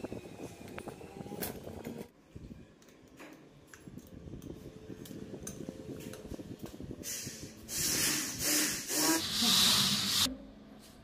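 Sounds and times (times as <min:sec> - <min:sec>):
loud hissing: 0:07.1 - 0:10.3.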